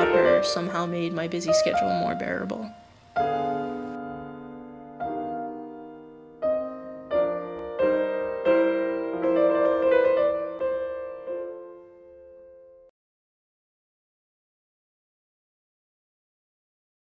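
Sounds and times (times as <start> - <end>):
slow solo piano: 1.4 - 12.9.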